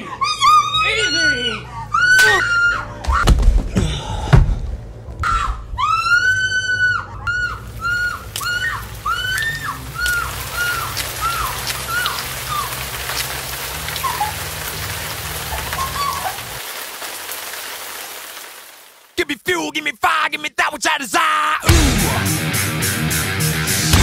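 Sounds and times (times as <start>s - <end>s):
woman screaming: 0.0s - 3.2s, 5.2s - 12.8s
crackling hiss of burning: 7.6s - 19.2s.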